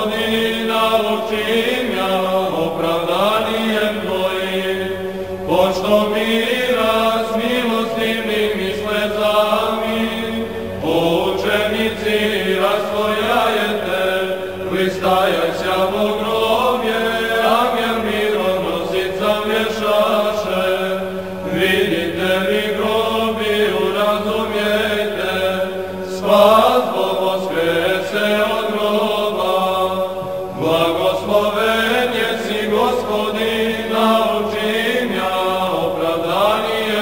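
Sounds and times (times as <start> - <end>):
low vocal drone: 0.0 - 37.0
unaccompanied liturgical chant: 0.0 - 37.0.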